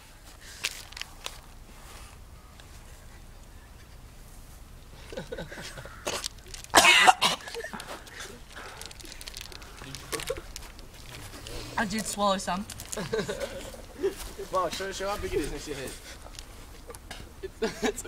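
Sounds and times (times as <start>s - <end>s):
young man gagging and coughing: 5.1s - 8.4s.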